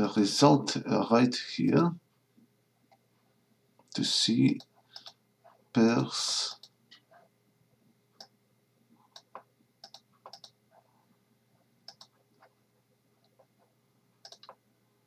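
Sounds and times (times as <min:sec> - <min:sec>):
faint computer clicks: 0:04.6 - 0:05.2, 0:09.1 - 0:10.6, 0:11.9 - 0:12.5, 0:14.2 - 0:14.6.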